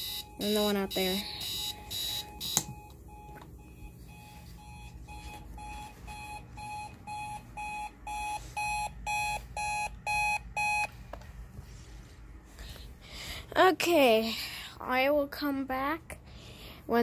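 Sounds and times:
alarm clock beeping: 0.0s - 11.0s.

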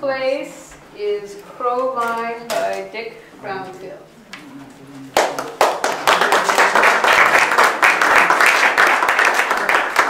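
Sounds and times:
audience clapping: 5.1s - 10.0s.

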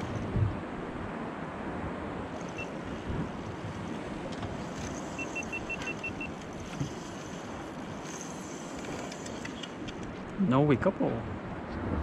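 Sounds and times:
wind over microphone: 0.0s - 12.0s
faint high beeps: 2.4s - 2.8s, 5.0s - 6.4s.

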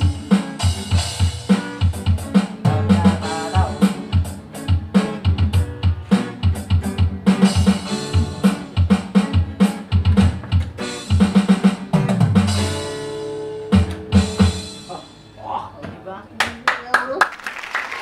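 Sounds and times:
drum kit beat: 0.0s - 15.4s
pop music: 1.6s - 9.8s.

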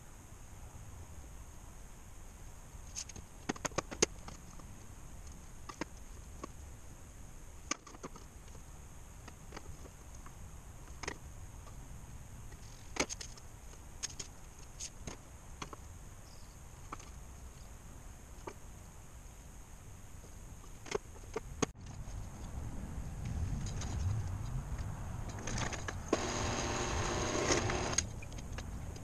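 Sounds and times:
low hum: 26.1s - 28.0s.

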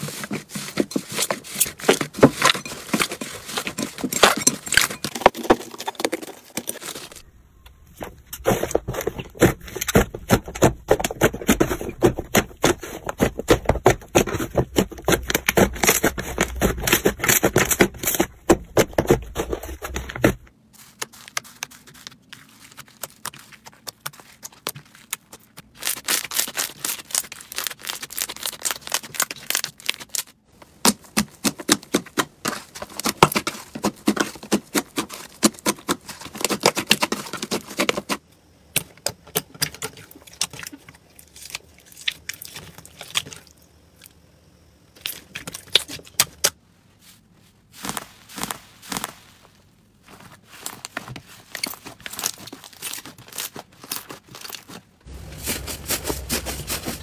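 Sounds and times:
slime popping and crackling: 22.6s - 30.3s.

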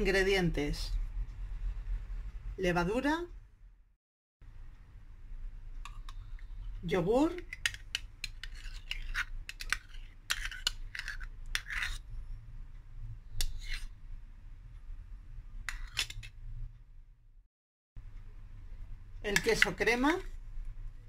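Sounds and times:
metal spoon scraping plastic cup: 7.2s - 12.1s, 13.4s - 13.9s, 15.7s - 16.3s, 19.3s - 20.2s.

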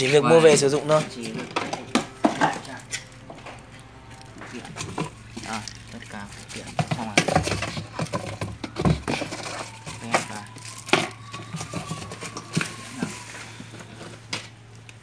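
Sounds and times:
plastic bags crinkling: 0.0s - 14.9s
parts knocking on plastic tank: 6.6s - 9.3s.

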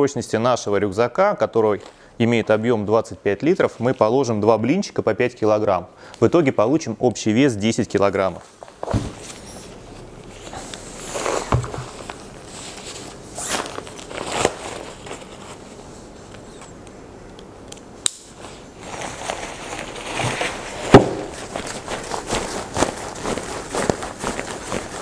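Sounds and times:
fabric rustling: 8.6s - 16.3s, 18.4s - 25.0s
loud thump: 20.9s - 21.4s.

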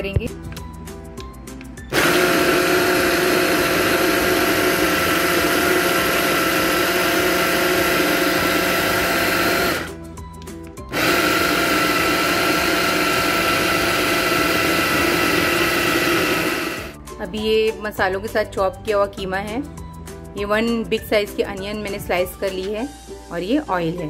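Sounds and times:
electric food chopper whining: 1.9s - 10.0s, 10.9s - 17.0s.

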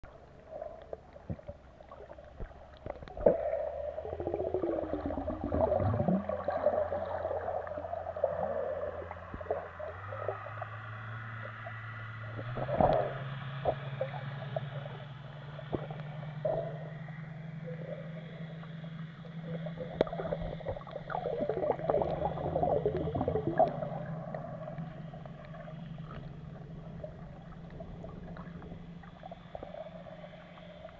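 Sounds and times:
low underwater hum: 0.0s - 30.9s
water gurgling: 0.1s - 30.9s
falling whine: 3.0s - 30.9s.

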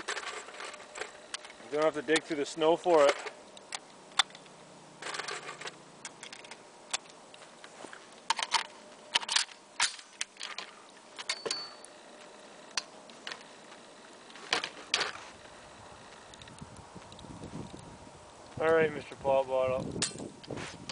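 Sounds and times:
rifle clicks and metallic rattles: 0.0s - 15.2s, 19.8s - 20.9s.

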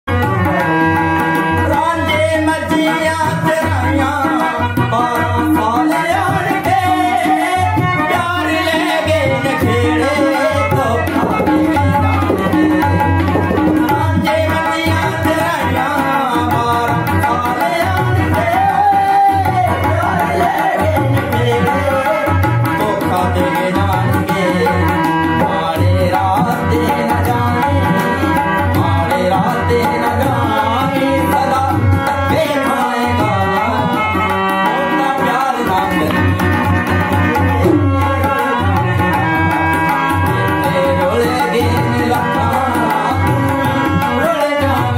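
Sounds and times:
harmonium playing chords and melody: 0.0s - 44.9s
tabla rhythm: 0.0s - 44.9s
man singing a folk song: 1.6s - 12.9s, 13.6s - 27.9s, 28.8s - 34.0s, 40.6s - 44.9s.

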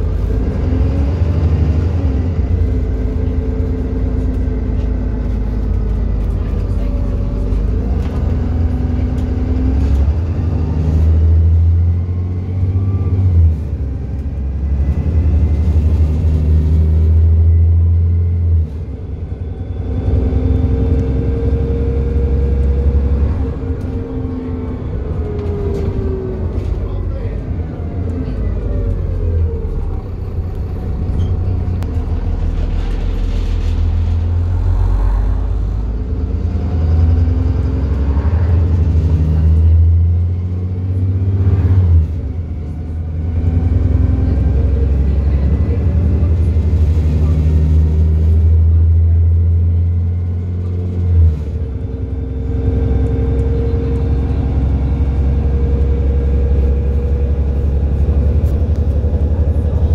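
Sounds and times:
bus diesel engine rumbling: 0.0s - 59.9s.

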